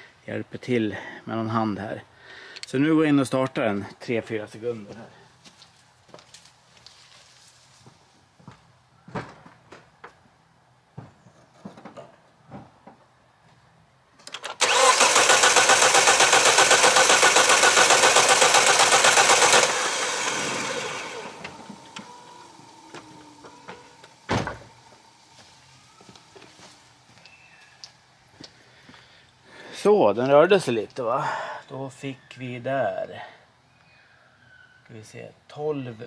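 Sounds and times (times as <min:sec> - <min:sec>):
starter motor cranking engine: 0:14.2 - 0:24.3
single thump: 0:24.3 - 0:24.7.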